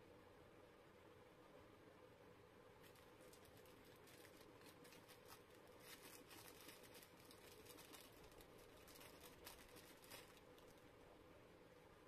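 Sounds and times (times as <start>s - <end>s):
wrapper crinkling: 2.8s - 10.9s.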